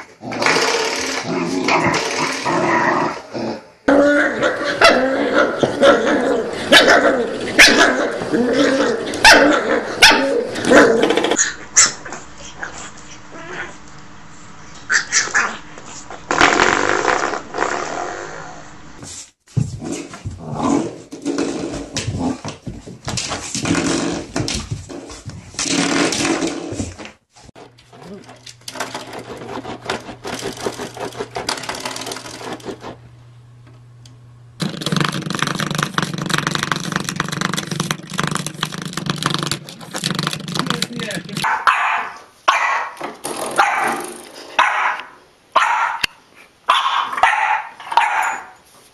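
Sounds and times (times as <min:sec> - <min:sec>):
puppies growling and yapping: 0:00.0 - 0:13.8, 0:14.4 - 0:16.4.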